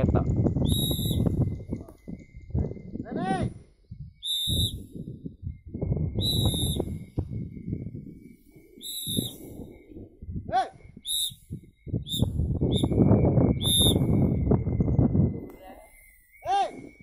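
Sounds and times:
whistle blasts: 0.6s - 2.5s, 3.9s - 17.0s.

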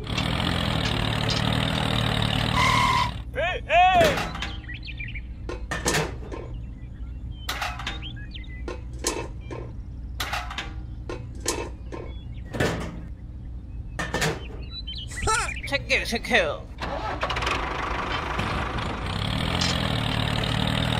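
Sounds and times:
low hum: 0.0s - 20.9s.

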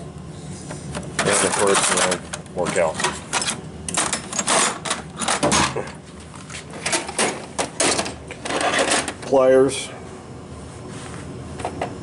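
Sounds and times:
metal drawers clacking: 1.2s - 6.0s, 6.8s - 9.4s.

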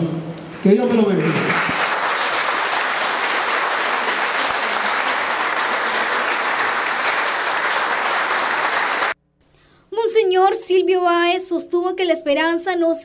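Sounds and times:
congregation applauding: 0.8s - 9.2s.

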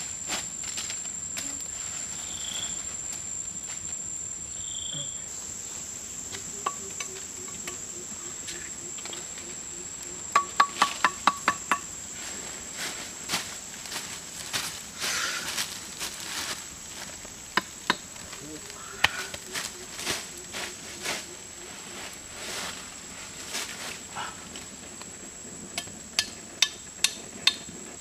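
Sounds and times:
forest insects droning: 0.0s - 28.0s
sharp knocks: 10.3s - 11.9s.

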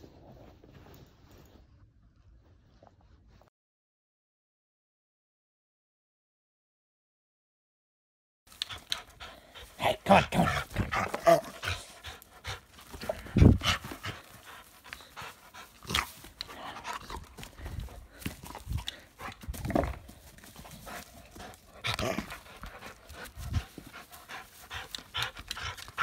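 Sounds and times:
dog panting: 8.5s - 26.0s.

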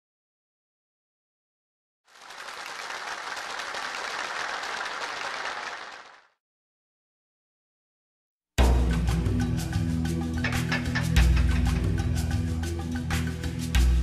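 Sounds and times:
applause: 2.1s - 6.4s.

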